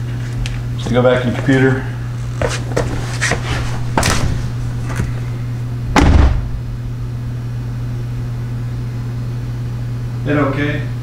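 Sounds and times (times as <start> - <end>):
steady low hum: 0.0 - 11.0
car door slamming: 5.9 - 6.6.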